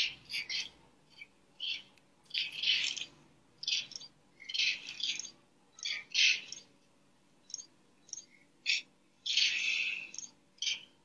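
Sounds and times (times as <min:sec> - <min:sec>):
high-pitched squawking animal calls: 0:08.6 - 0:10.9.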